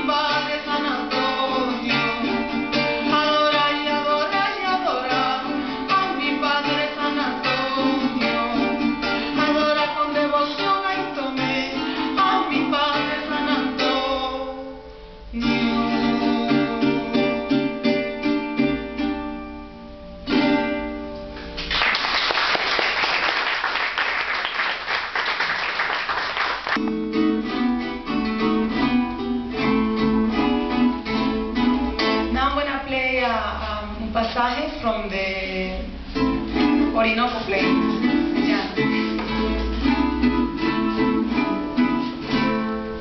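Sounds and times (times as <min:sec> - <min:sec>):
woman singing: 0:00.0 - 0:17.4, 0:32.2 - 0:36.0, 0:36.6 - 0:40.2
strummed small guitar: 0:00.0 - 0:21.7, 0:26.8 - 0:32.7, 0:35.8 - 0:43.0
applause: 0:21.4 - 0:26.8.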